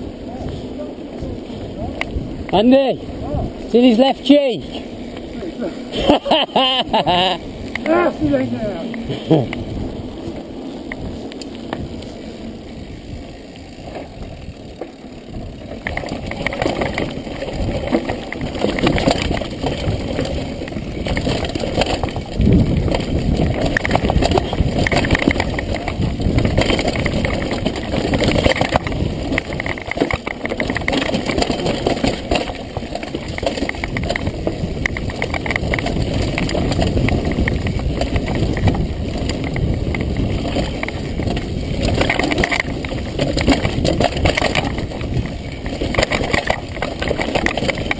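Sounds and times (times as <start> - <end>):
bike clattering: 0.0 - 47.9
wind rushing over microphone: 0.0 - 47.9
tyres crunching over stones: 4.9 - 47.9.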